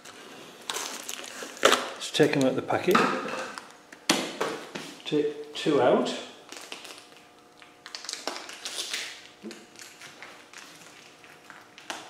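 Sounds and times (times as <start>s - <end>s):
packaging crinkling: 0.0s - 2.5s, 6.4s - 12.0s.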